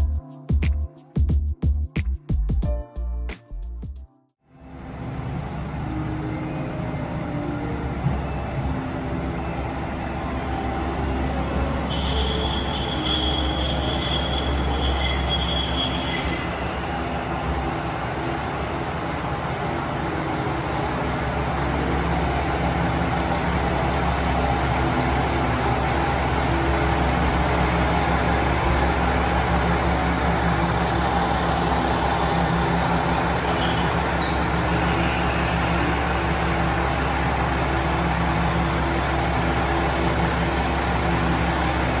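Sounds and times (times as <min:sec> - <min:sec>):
high squeals: 0:11.1 - 0:17.5, 0:33.1 - 0:37.0.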